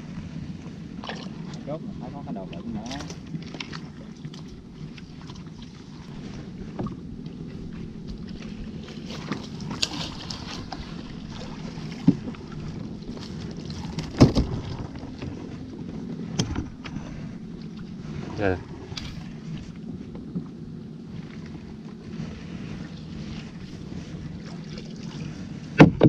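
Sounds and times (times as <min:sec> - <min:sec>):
low rumble: 0:00.0 - 0:26.0
water splashing: 0:01.0 - 0:19.8
wooden pole knocking on boat hull: 0:11.9 - 0:13.2, 0:13.8 - 0:15.4, 0:25.8 - 0:26.0.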